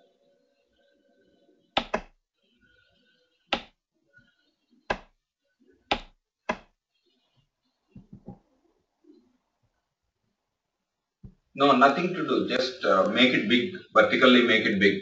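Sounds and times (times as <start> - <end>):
computer mouse clicks: 1.8 - 2.1, 5.9 - 6.7.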